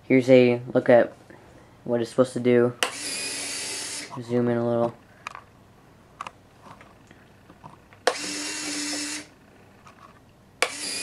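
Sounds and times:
retract mechanism humming: 0:02.8 - 0:05.5, 0:06.1 - 0:11.0.

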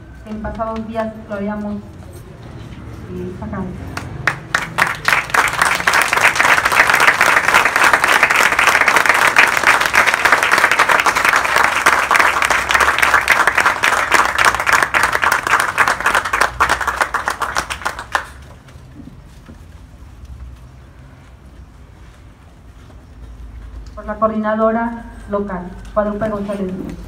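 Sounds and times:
audience applauding: 0:04.0 - 0:18.5.

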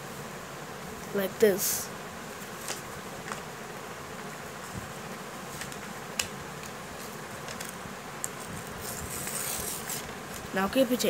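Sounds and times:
steady buzzing hum: 0:00.0 - 0:11.0
paper rustling and folding: 0:02.3 - 0:03.5, 0:04.2 - 0:11.0.

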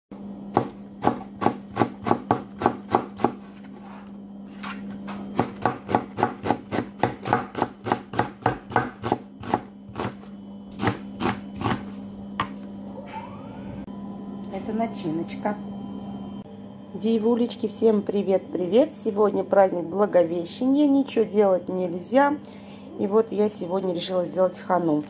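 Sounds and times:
steady low hum: 0:00.1 - 0:25.0
knife chopping onion on board: 0:00.5 - 0:03.4, 0:05.3 - 0:12.6.

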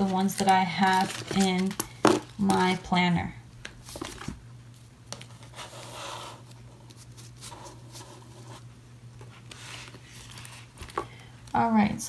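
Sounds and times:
banknotes rustling on wood: 0:00.0 - 0:02.8, 0:03.8 - 0:04.4.

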